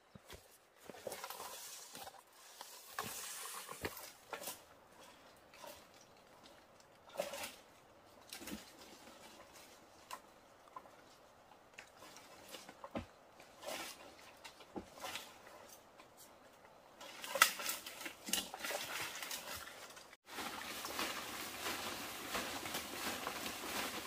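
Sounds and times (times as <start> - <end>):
dry leaves rustling: 17.1 - 24.0.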